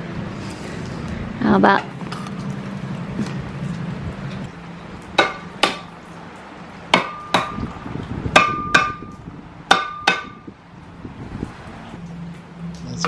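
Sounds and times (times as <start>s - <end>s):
hammer striking metal: 5.2s - 5.9s, 6.9s - 7.7s, 8.3s - 10.5s.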